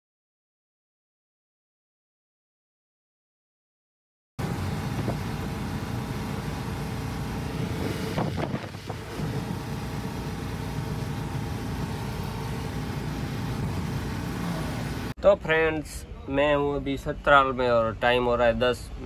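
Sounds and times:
truck engine and road noise: 4.4s - 19.0s.

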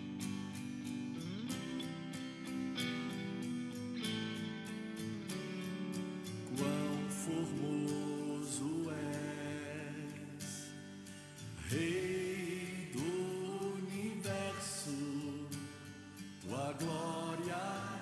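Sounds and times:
man singing: 6.5s - 10.8s, 11.6s - 18.0s.

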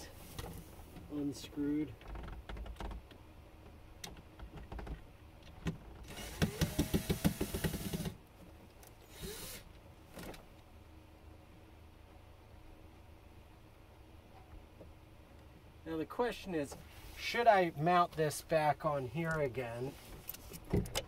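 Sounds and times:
handling clicks and knocks: 2.0s - 9.0s, 20.2s - 21.0s
electric driver backing out screw: 6.1s - 8.2s.

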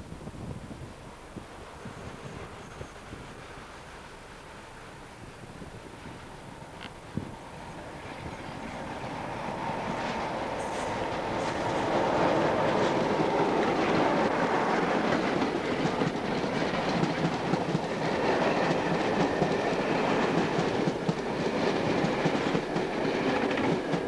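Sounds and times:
diesel locomotive engine: 0.6s - 24.0s
train wheels clickety-clack: 8.0s - 24.0s.

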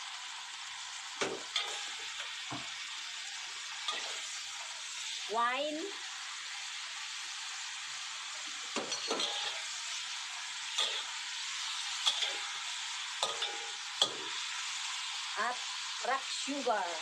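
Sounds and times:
birds sizzling in a wok: 0.0s - 17.0s
metal spatula scraping wok: 1.3s - 2.4s, 3.7s - 4.6s, 8.8s - 14.6s.

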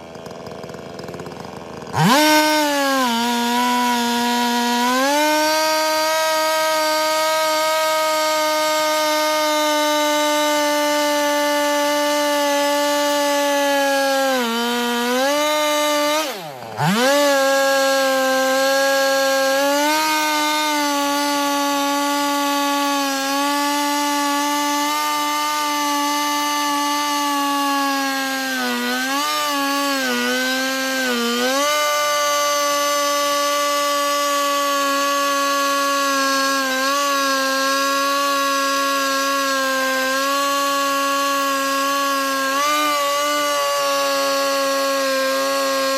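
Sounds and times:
chainsaw cutting log: 0.0s - 45.9s.

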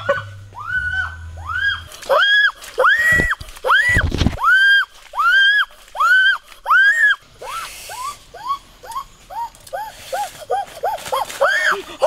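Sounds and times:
child crying: 8.4s - 12.0s.

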